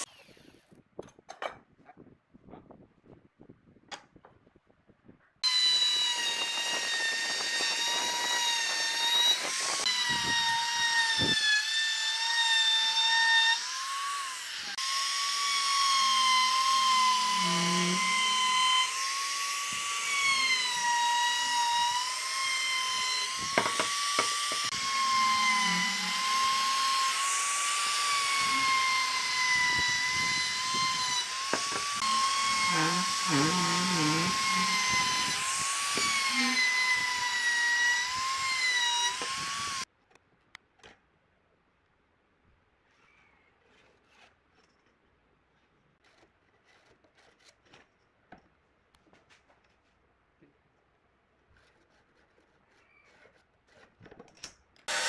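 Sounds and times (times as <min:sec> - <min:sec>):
trim router whining: 0:00.0 - 0:00.6, 0:05.4 - 0:39.9.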